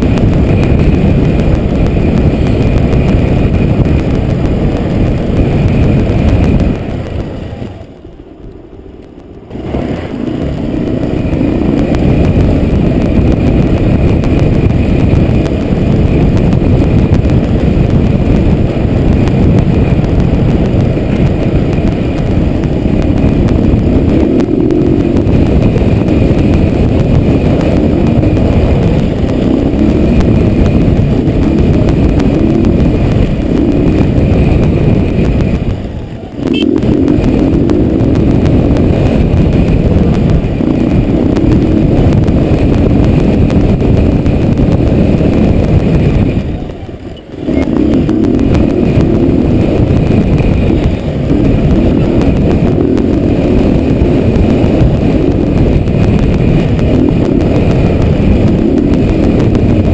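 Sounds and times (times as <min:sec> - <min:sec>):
motorcycle engine running: 0:00.0 - 0:59.9
rush of wind noise: 0:00.0 - 0:59.9.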